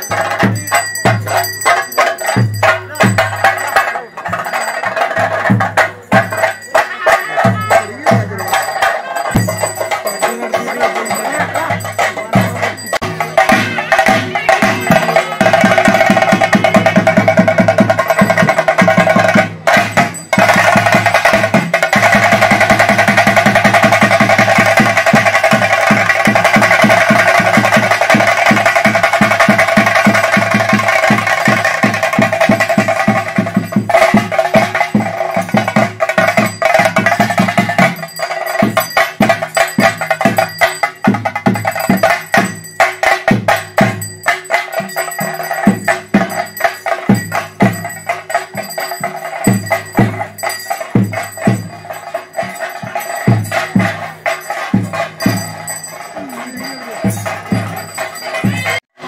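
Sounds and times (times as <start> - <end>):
drums beaten with sticks: 0.0 - 59.0.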